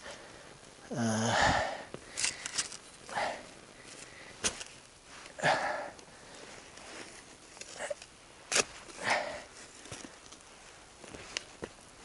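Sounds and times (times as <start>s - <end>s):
person breathing hard: 0.0s - 4.4s, 9.0s - 9.5s
person grunting: 0.9s - 1.9s.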